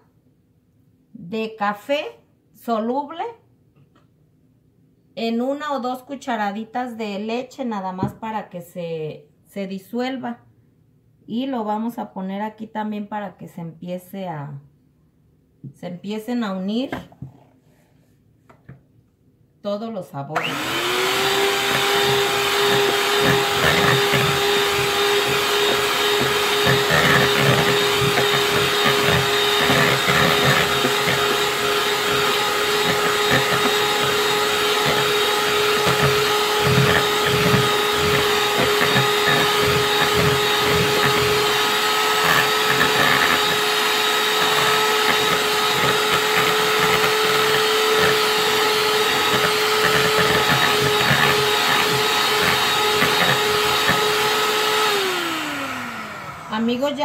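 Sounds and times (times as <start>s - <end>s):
mixer beaters knocking: 20.4s - 56.5s
electric hand mixer motor whine: 20.4s - 57.0s.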